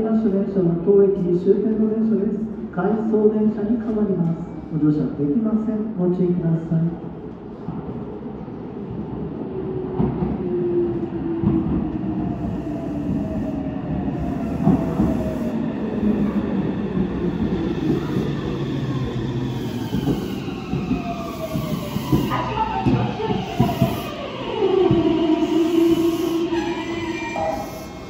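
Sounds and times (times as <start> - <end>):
train wheel clatter and rumble: 7.2 - 28.0
electric train motors whining: 19.5 - 28.0.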